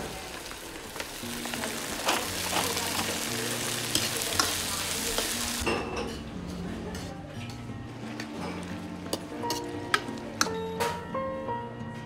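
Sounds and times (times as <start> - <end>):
food sizzling in a wok: 0.0 - 5.8.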